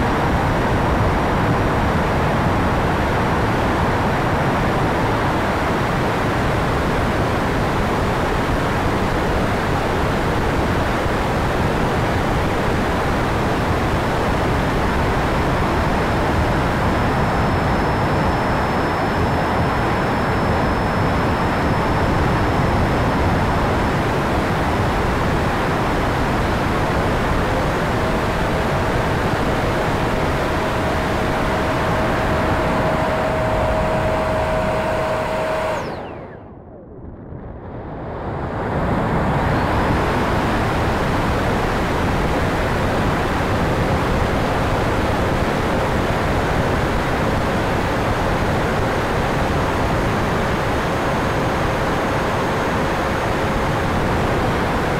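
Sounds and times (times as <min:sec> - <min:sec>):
rushing air and ducted fan whine: 0:00.0 - 0:54.9.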